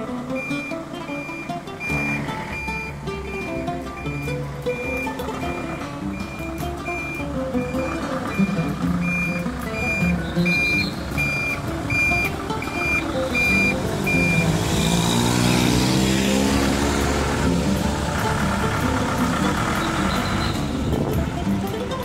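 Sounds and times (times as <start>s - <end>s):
van engine running: 0.0s - 22.0s
reversing alarm beeping: 0.3s - 16.0s, 19.4s - 20.7s.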